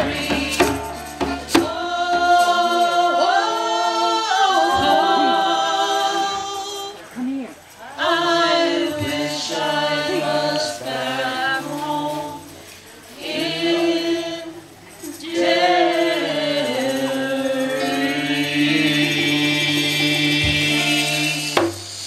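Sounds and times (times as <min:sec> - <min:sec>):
voices singing in harmony: 0:00.0 - 0:22.0.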